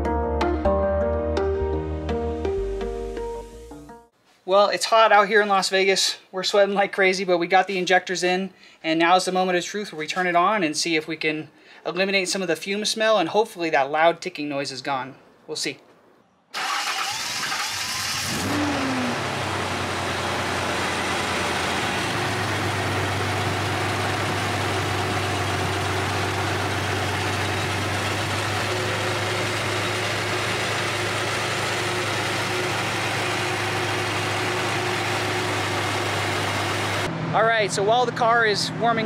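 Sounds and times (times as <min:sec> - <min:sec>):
car engine starting and idling: 0:16.6 - 0:39.0.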